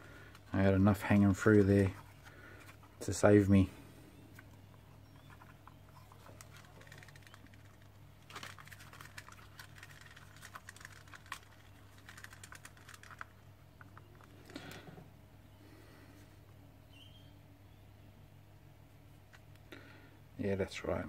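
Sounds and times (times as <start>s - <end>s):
low steady hum: 0.0s - 21.0s
plastic clicking and webbing rustling: 4.3s - 15.0s
dense run of small clicks: 5.2s - 14.9s.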